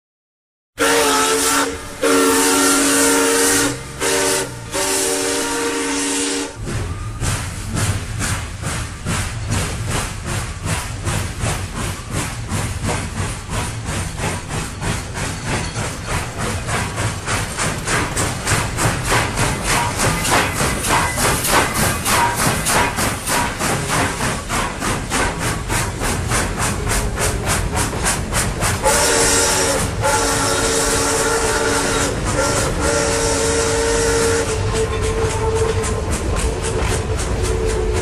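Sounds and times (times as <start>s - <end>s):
steam locomotive whistle: 0.8s - 7.4s, 20.8s - 23.6s, 28.8s - 38.0s
steam engine chuffing: 0.8s - 38.0s.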